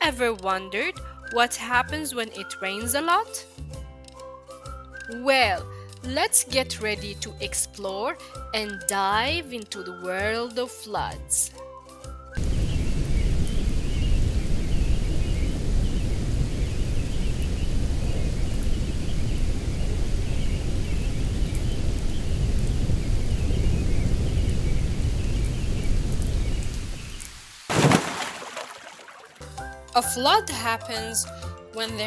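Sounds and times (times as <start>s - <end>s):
deep low rumble: 12.4s - 27.0s
heavy rain: 12.4s - 29.1s
rushing water: 25.8s - 29.6s.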